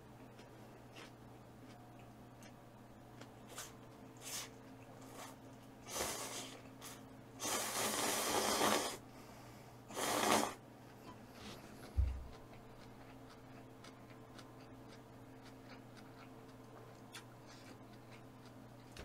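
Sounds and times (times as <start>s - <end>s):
person eating noodles: 3.5s - 9.0s, 9.9s - 10.6s.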